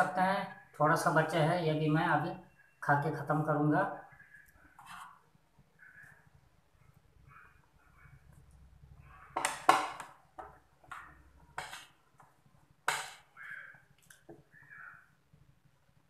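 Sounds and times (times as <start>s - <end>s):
metal spoon scraping a plate: 11.6s - 11.9s.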